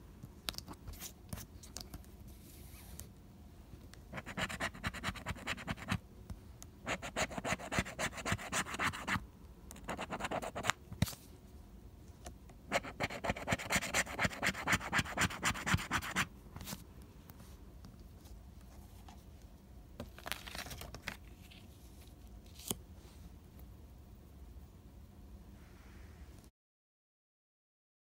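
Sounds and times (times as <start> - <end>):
plastic tool scraping scratch ticket: 6.9 - 9.2, 12.7 - 16.3.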